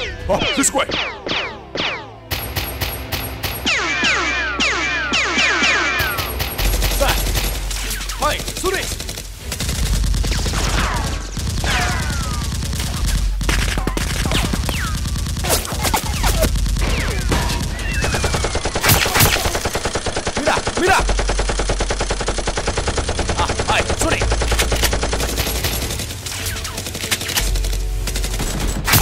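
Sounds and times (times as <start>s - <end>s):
single gunshots: 0.9s - 21.1s
automatic gunfire: 2.3s - 29.0s.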